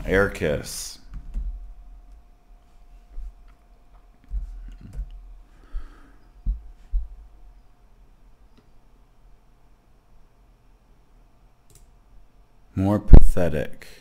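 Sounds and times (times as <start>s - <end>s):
faint steady hum: 0.0s - 14.0s
dull thumps: 1.1s - 2.3s, 3.1s - 5.4s, 6.4s - 7.4s
keyboard and mouse clicks: 11.7s - 11.9s.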